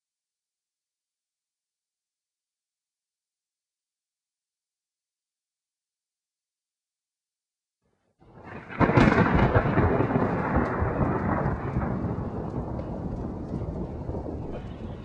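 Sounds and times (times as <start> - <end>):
loud rumbling crash: 8.3 - 15.0.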